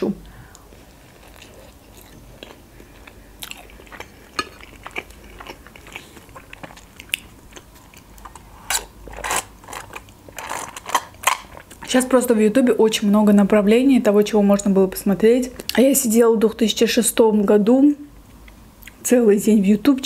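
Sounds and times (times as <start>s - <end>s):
close chewing: 0.9s - 8.8s.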